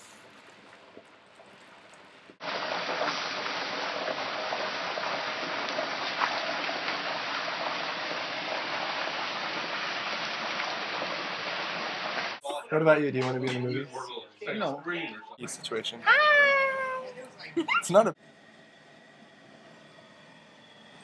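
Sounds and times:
oil bubbling and sizzling: 0.0 - 12.4.

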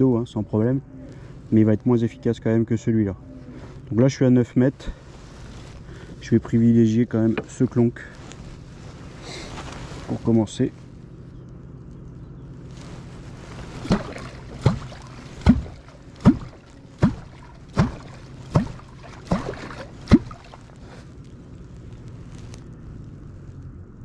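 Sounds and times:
wooden clonk slapping water: 13.5 - 20.9.

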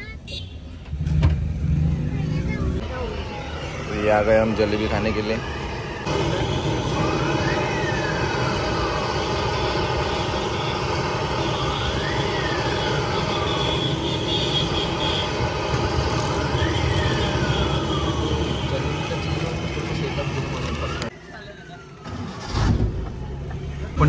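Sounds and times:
street traffic noise: 0.0 - 24.0
siren wailing up and down: 2.9 - 14.0, 15.2 - 22.4.

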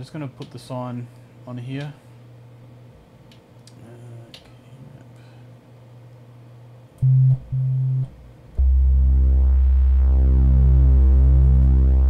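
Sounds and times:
synthesizer pad notes: 7.0 - 12.0.

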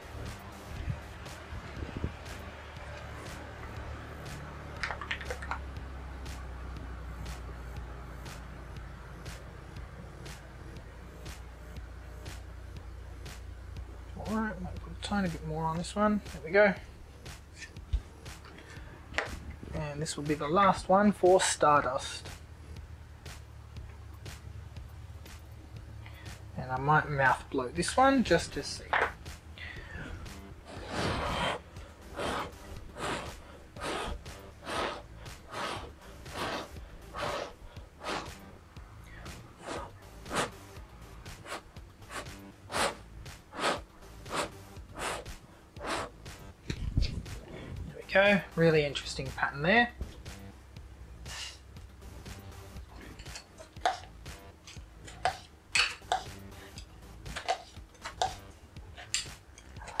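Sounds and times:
faint background music: 0.0 - 60.0
person blowing puffs of breath: 29.6 - 38.4, 39.0 - 40.7, 41.3 - 46.3, 51.2 - 51.7.

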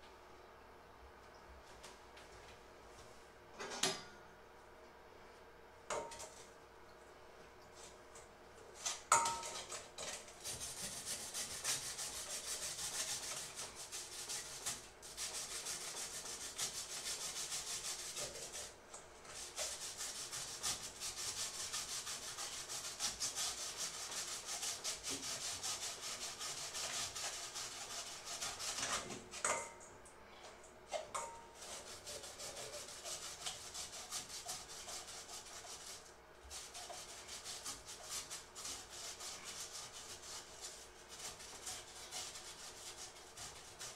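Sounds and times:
food rasping on metal grater: 9.6 - 18.7, 19.3 - 29.2, 31.6 - 43.9.

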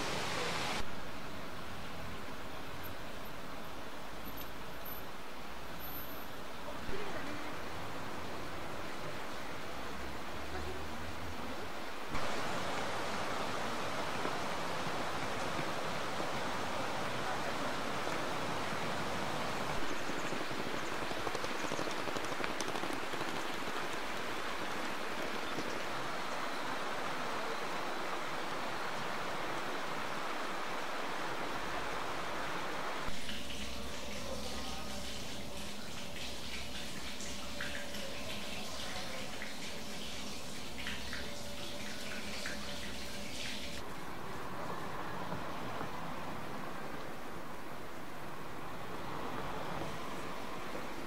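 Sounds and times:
river rushing over stones: 0.0 - 0.9, 12.1 - 33.2.

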